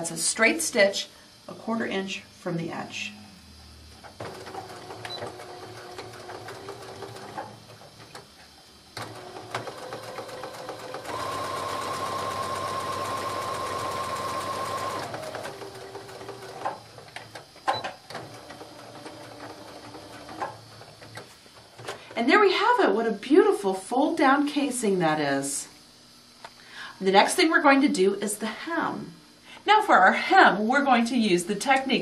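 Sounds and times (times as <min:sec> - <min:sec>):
sewing machine stitching: 0:04.2 - 0:08.2, 0:09.0 - 0:16.8, 0:17.8 - 0:21.2.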